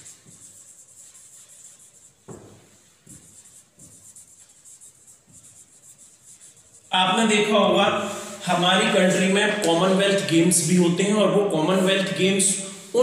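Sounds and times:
marker writing on whiteboard: 0:00.0 - 0:07.6.

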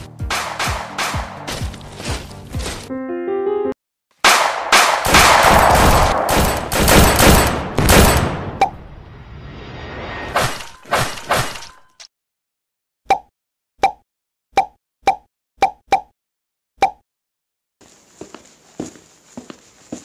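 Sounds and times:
gunshots: 0:00.2 - 0:01.5, 0:04.2 - 0:08.6.

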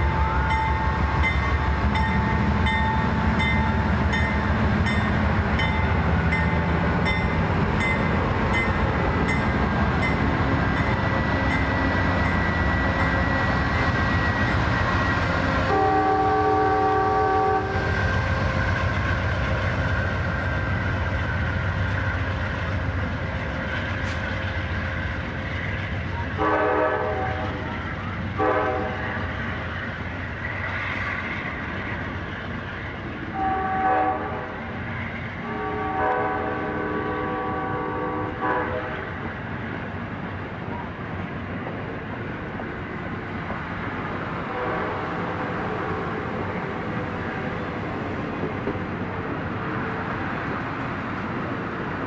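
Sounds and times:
train wheels rumbling on rails: 0:00.0 - 0:52.0
locomotive horn blasts: 0:15.7 - 0:17.9, 0:26.4 - 0:27.6, 0:28.4 - 0:29.0, 0:33.3 - 0:34.5, 0:35.4 - 0:39.0.

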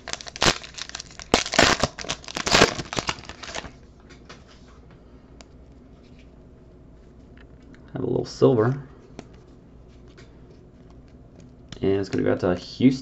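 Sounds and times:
foil wrapper crinkling and tearing: 0:00.0 - 0:03.8.

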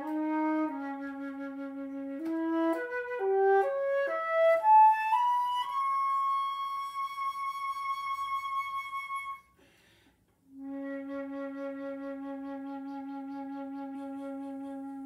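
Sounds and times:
flute long low note: 0:00.0 - 0:09.5, 0:10.5 - 0:15.0
flute high note with vibrato: 0:00.0 - 0:09.6.

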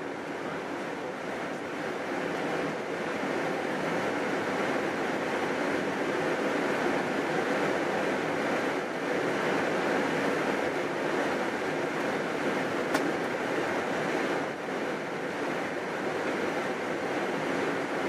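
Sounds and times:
aircraft cockpit engine rush: 0:00.0 - 0:18.0
sharp click: 0:12.9 - 0:13.1.

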